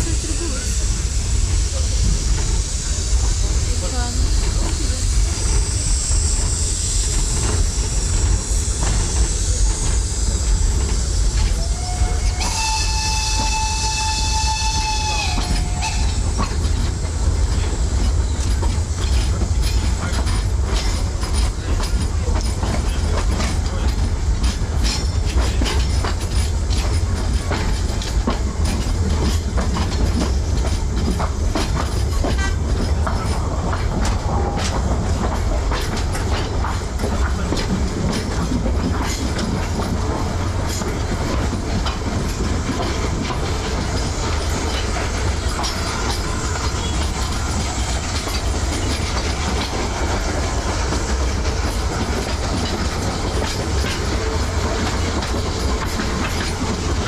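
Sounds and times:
train rumble: 0:00.0 - 0:57.0
wheels clicking over rail joints: 0:06.3 - 0:57.0
steam whistle: 0:11.6 - 0:16.4.

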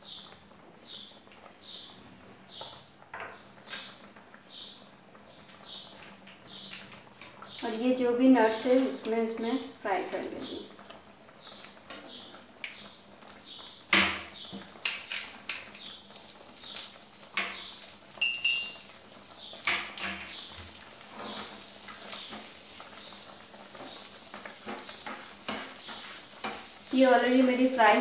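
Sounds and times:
nuts sizzling in fat: 0:05.5 - 0:28.0
utensils knocking on frying pan: 0:13.9 - 0:15.9, 0:17.3 - 0:18.9, 0:23.8 - 0:27.8.

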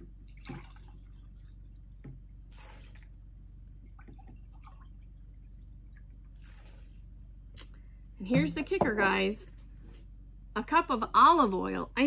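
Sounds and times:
liquid trickling into jar: 0:00.2 - 0:07.3.

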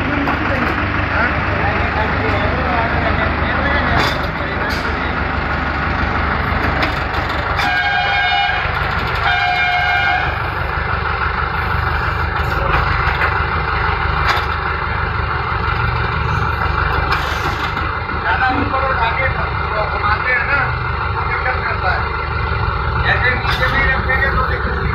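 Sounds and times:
low engine rumble: 0:00.0 - 0:24.9
horn blasts: 0:07.6 - 0:10.5.

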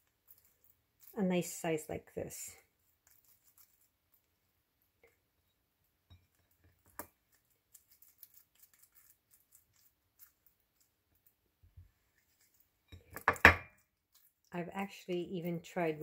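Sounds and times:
sticky rice squishing in hands: 0:00.0 - 0:01.6, 0:02.7 - 0:05.0, 0:06.3 - 0:12.8.

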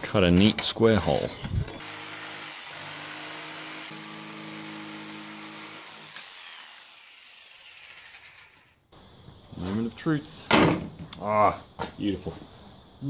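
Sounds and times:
jigsaw cutting plywood: 0:01.8 - 0:08.7.

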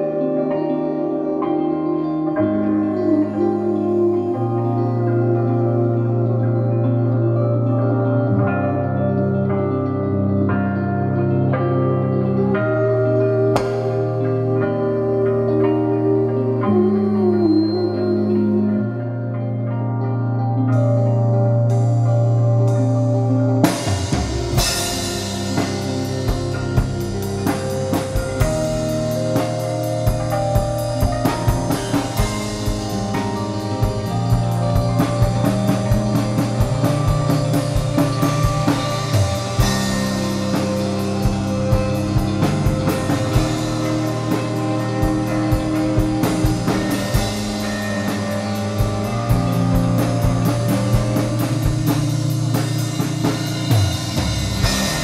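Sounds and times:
electric guitar: 0:00.0 - 0:55.0
low bass notes: 0:00.0 - 0:55.0
drum kit beat with cymbals: 0:13.5 - 0:16.0, 0:21.7 - 0:55.0.

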